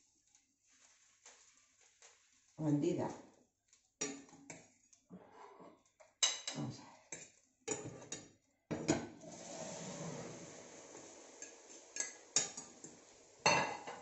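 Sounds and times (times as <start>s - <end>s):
fork scraping a frying pan: 7.1s - 8.2s, 8.9s - 14.0s.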